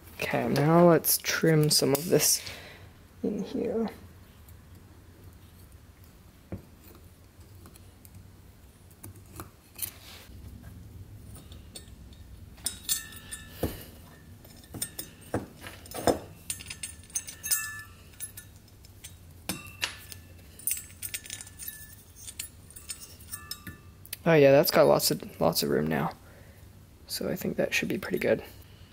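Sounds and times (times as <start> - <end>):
hand tool clicking and scraping metal: 11.2 - 23.9.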